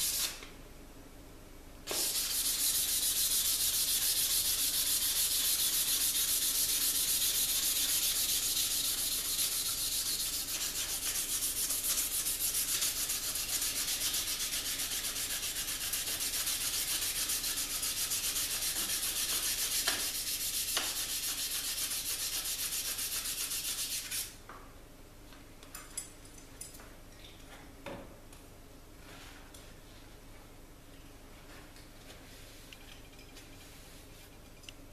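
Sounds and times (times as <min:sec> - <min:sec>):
sandpaper rubbing on metal blade: 0:00.0 - 0:00.4, 0:01.9 - 0:24.3.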